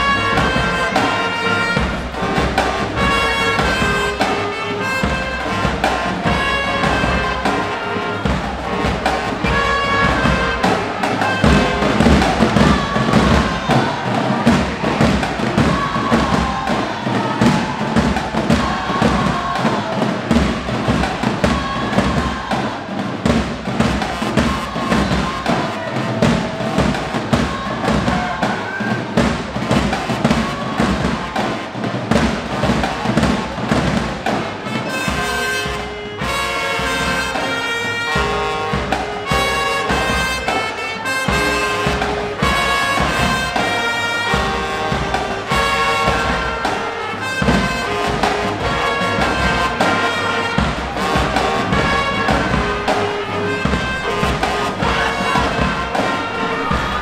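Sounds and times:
bass and snare drums beat: 0:00.0 - 0:57.0
brass and reeds holding notes: 0:00.0 - 0:57.0
marching band playing: 0:00.0 - 0:57.0.

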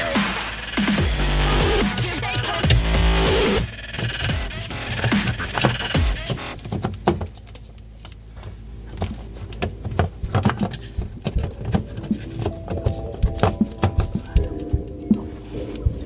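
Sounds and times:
low steady hum: 0:06.5 - 0:16.0.

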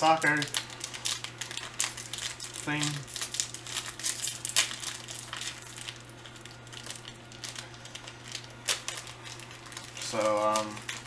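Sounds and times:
plastic wrapper crinkling: 0:00.0 - 0:11.0.

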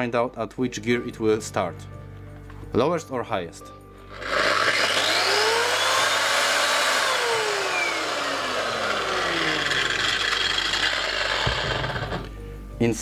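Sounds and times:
sander motor whine: 0:04.1 - 0:12.3.

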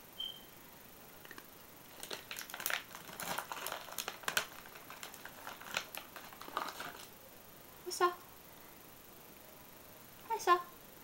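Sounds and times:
crinkling and crackling clicks: 0:01.2 - 0:07.2.

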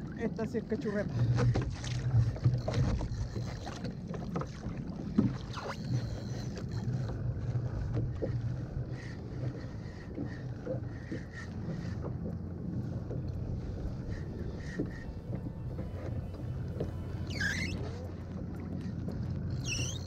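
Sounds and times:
water against kayak hull: 0:00.0 - 0:20.0
wind buffeting microphone: 0:06.6 - 0:20.0.

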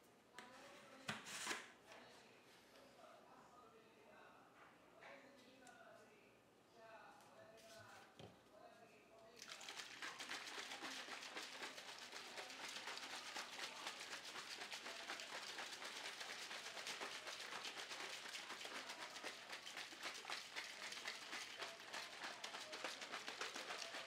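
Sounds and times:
liquid sloshing in shaker bottle: 0:09.4 - 0:24.0.

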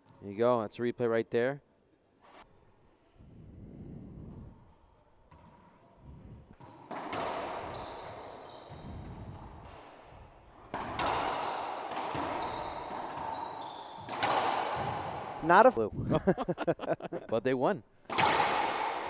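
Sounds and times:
racquets hitting rubber ball: 0:10.7 - 0:15.4, 0:18.1 - 0:19.0.

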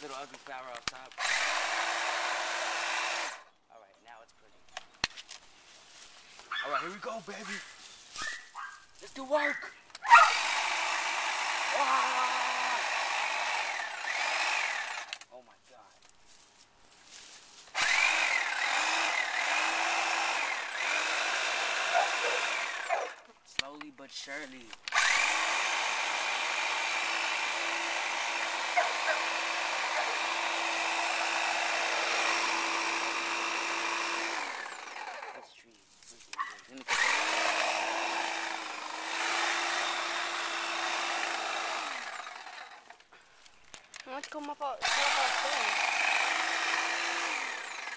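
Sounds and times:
chainsaw cutting: 0:00.0 - 0:03.5, 0:09.0 - 0:15.4, 0:17.6 - 0:47.9
electric saw motor whining: 0:01.2 - 0:03.5, 0:10.0 - 0:15.2, 0:17.8 - 0:23.3, 0:24.9 - 0:35.4, 0:36.9 - 0:43.0, 0:44.8 - 0:47.9.

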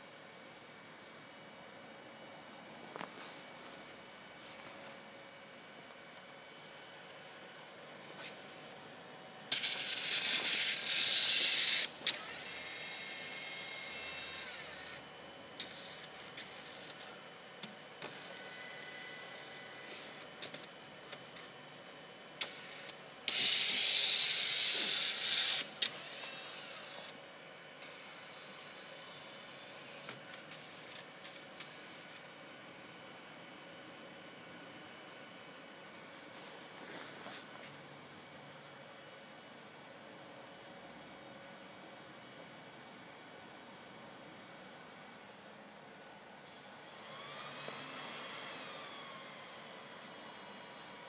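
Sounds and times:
motor whirring: 0:09.5 - 0:15.0, 0:22.4 - 0:27.2.

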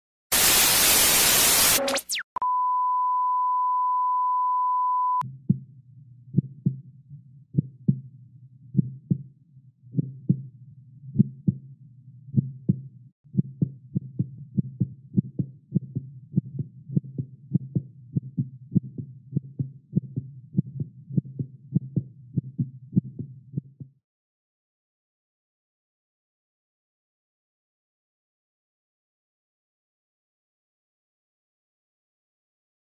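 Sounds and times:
television static hiss: 0:00.4 - 0:02.2
steady high beep tone: 0:01.5 - 0:05.2
heartbeat thumps: 0:05.4 - 0:05.7, 0:06.3 - 0:06.9, 0:07.5 - 0:08.1, 0:08.7 - 0:09.3, 0:09.9 - 0:10.5, 0:11.2 - 0:11.7, 0:12.4 - 0:23.9.

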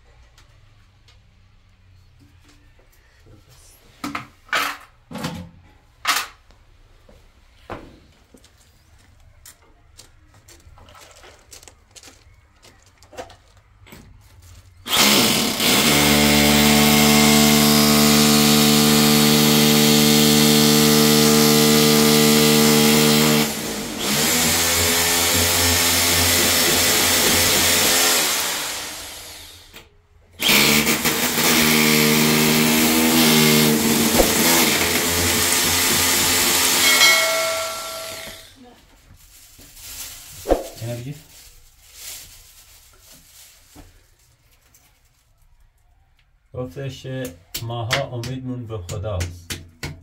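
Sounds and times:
electric drill boring into tile: 0:14.9 - 0:29.7, 0:30.4 - 0:38.6.

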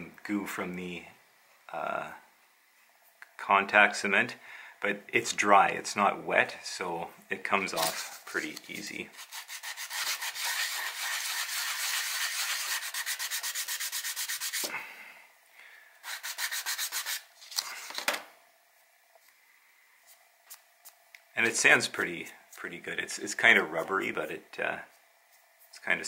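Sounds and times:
sanding on sandpaper block: 0:09.1 - 0:14.7, 0:16.0 - 0:17.3.

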